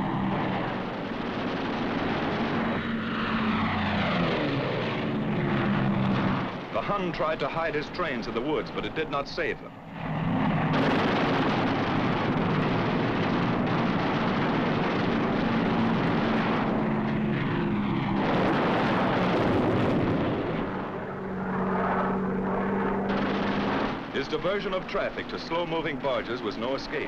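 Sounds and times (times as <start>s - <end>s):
propeller plane engines droning: 0.0s - 27.0s.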